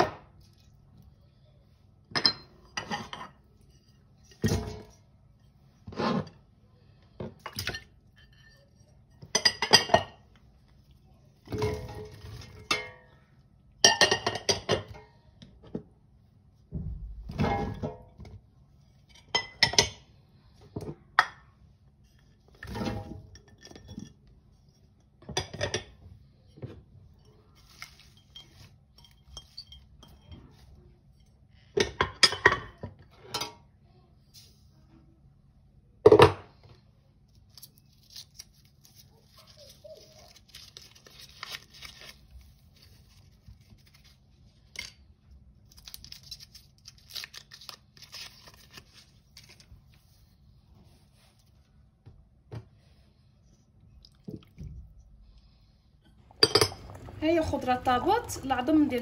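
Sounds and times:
crinkly wrapper rustling: 37.4s - 44.2s, 45.6s - 50.2s
bowls clinking on metal pot: 56.3s - 59.0s.

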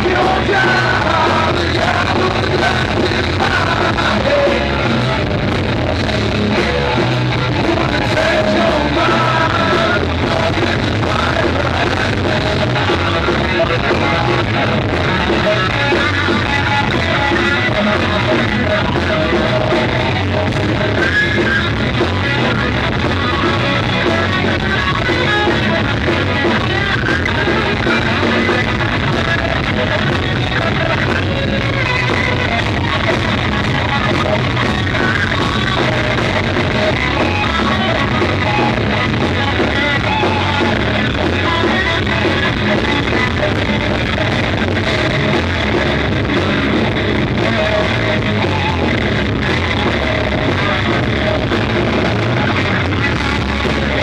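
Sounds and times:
drums: 0.0s - 54.0s
electric guitars: 0.0s - 54.0s
vocalist singing into a microphone: 0.0s - 54.0s.

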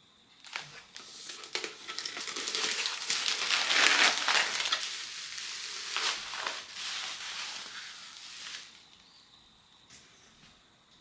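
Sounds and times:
potting soil crunching: 0.4s - 9.0s.

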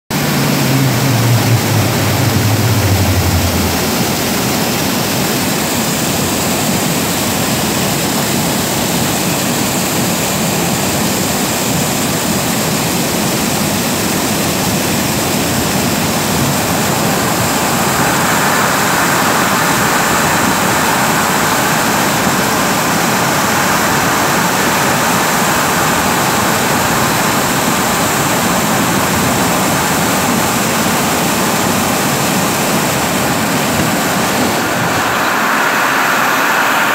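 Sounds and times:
low pump hum: 0.1s - 4.9s.

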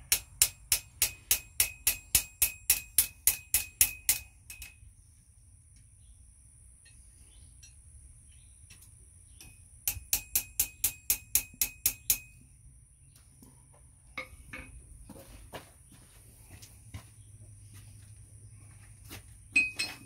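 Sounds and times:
hammer striking steel on anvil: 0.0s - 4.8s, 9.4s - 12.4s, 14.2s - 14.8s
light metal clinks: 1.1s - 4.9s, 9.4s - 12.4s, 19.6s - 20.0s.

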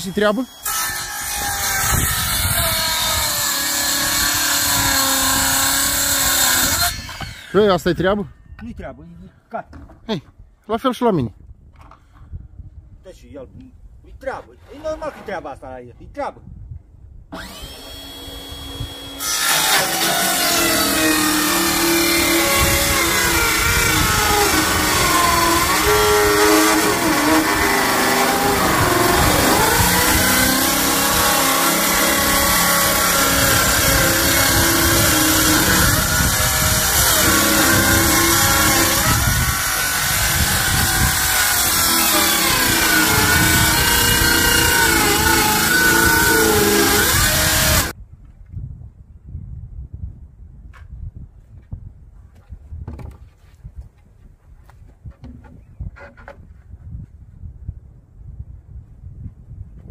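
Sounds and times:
circular saw cutting wood: 0.0s - 7.8s, 17.3s - 47.9s.

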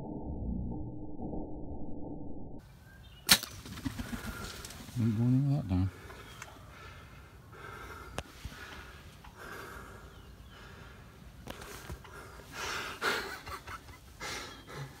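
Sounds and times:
heavy breathing and gasps: 5.9s - 13.3s, 14.2s - 15.0s
faint sharp clicks: 6.3s - 6.6s.

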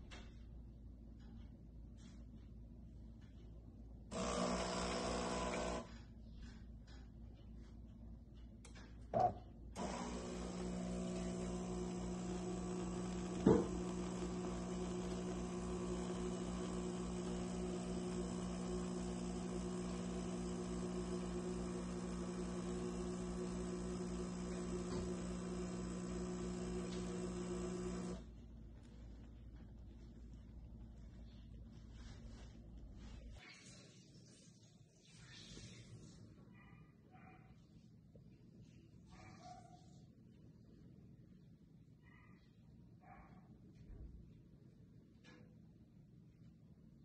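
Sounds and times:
espresso machine pump humming: 4.1s - 6.0s, 9.2s - 28.3s.

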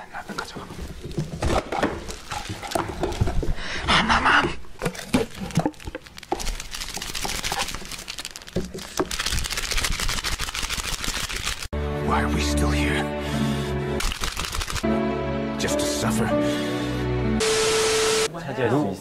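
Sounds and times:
plastic wrap crinkling and tearing: 0.8s - 3.5s, 4.9s - 11.7s, 14.0s - 14.8s.

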